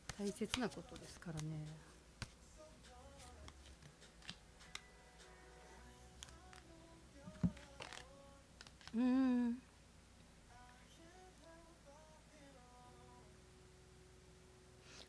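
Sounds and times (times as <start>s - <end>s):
cards clicking and rustling: 0.0s - 2.4s, 3.2s - 4.9s, 7.4s - 9.0s.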